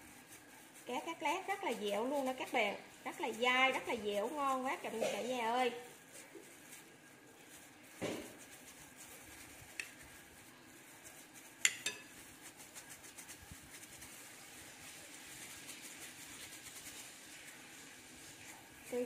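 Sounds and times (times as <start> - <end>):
soft scraping and squishing: 0.0 - 19.0
spoon clinking against glass bowl: 11.6 - 12.2.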